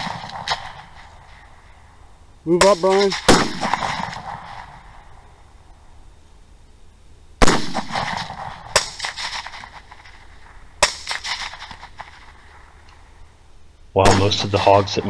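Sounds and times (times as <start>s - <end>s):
suppressed rifle shots: 0.0s - 1.6s, 2.6s - 5.2s, 7.4s - 13.1s, 14.0s - 15.0s.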